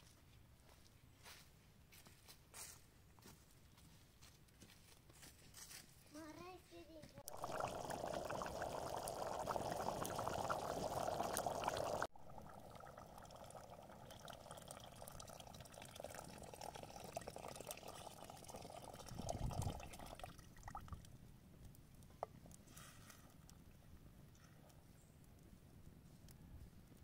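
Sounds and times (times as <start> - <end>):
water boiling hard in a pot: 7.2 - 21.0
water pouring from a kettle: 7.2 - 21.1.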